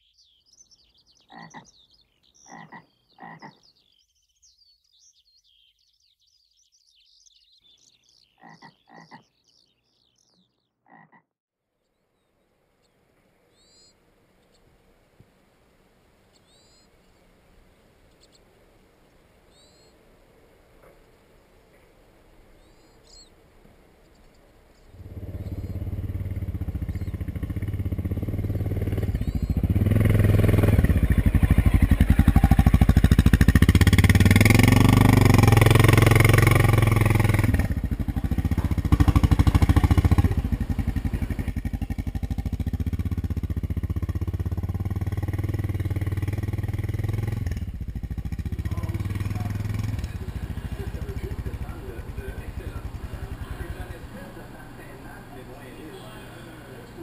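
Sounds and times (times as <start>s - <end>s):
motorcycle engine running: 24.9s - 57.0s.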